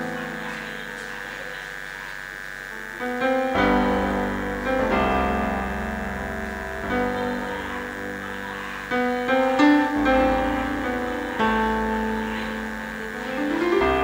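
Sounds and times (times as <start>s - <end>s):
electric keyboard chords: 0.0s - 14.0s
high-pitched whine: 0.0s - 14.0s
deep bass notes: 2.9s - 14.0s.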